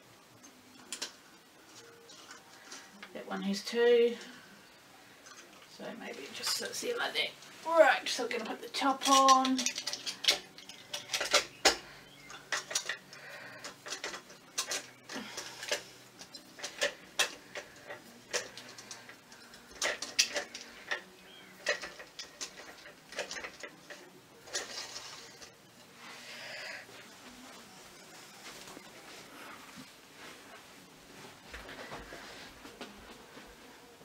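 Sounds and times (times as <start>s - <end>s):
hard plastic parts clicking: 8.6s - 25.6s.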